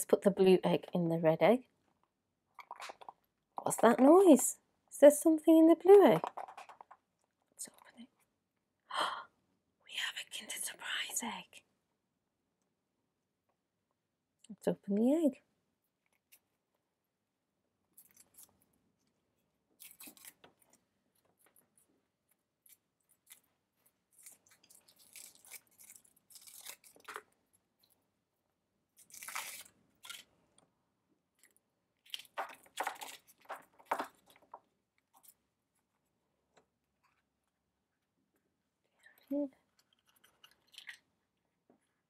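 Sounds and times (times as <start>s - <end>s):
foil wrapper crinkling and tearing: 24.1s - 27.3s, 29.0s - 30.3s.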